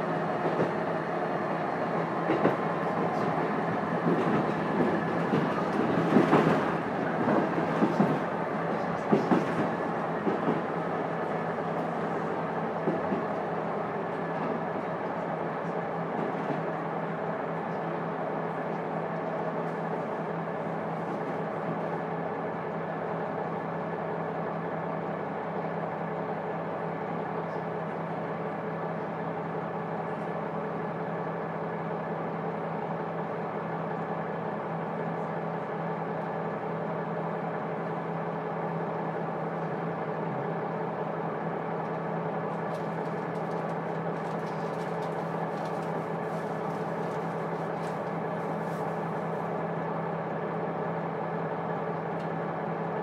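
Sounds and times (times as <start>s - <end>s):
diesel engine running steadily: 10.8s - 53.0s.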